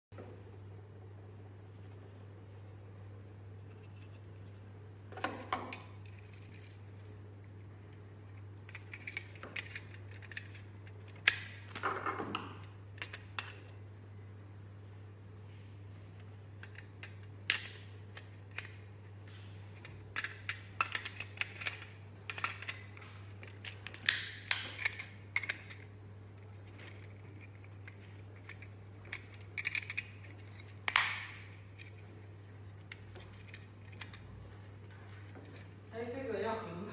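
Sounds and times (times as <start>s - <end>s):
plastic and metal parts clicking: 8.6s - 13.8s, 16.6s - 18.8s, 19.8s - 32.0s.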